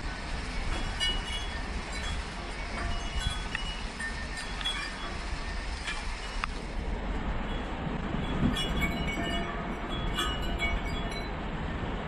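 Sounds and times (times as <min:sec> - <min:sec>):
pouring rain: 0:00.0 - 0:08.6
wind chimes tinkling: 0:00.5 - 0:06.8, 0:07.4 - 0:12.0.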